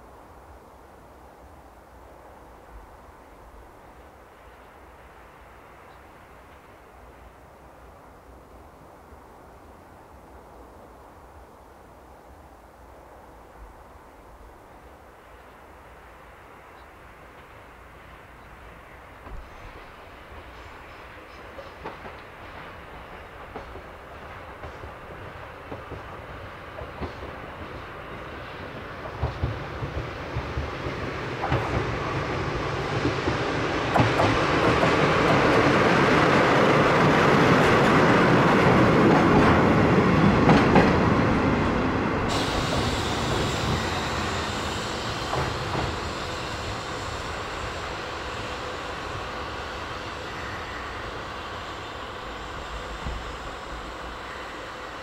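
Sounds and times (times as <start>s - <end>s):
diesel locomotive engines running: 18.7s - 55.0s.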